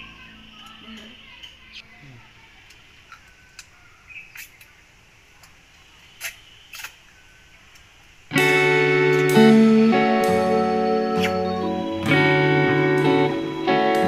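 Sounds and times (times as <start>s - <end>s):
loud music with held notes: 8.3s - 14.0s.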